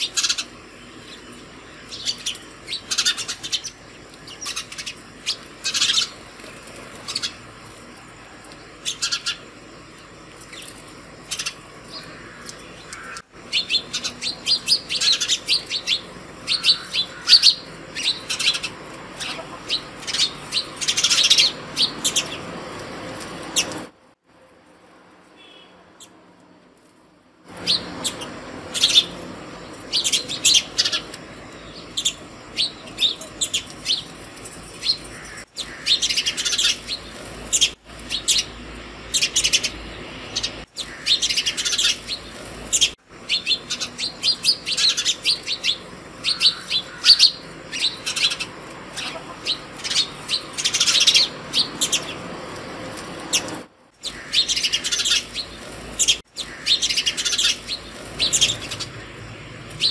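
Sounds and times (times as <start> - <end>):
sparrows chirping: 0.0 - 23.9, 25.4 - 26.2, 27.5 - 59.9.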